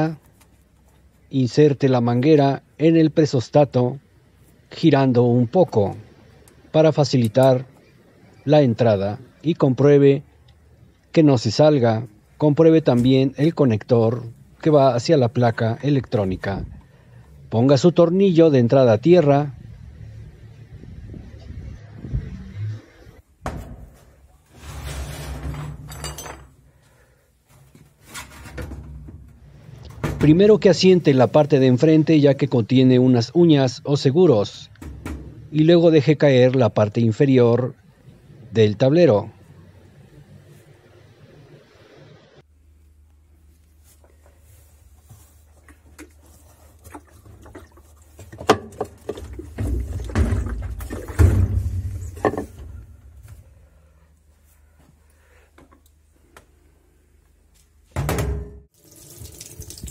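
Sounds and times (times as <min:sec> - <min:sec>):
scraping and rubbing: 0:24.0 - 0:25.9, 0:27.6 - 0:28.8.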